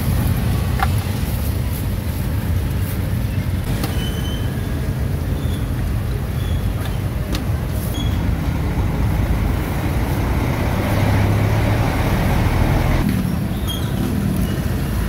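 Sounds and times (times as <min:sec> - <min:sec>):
road traffic engines rumbling: 0:00.0 - 0:15.0
large truck passing: 0:08.0 - 0:13.2.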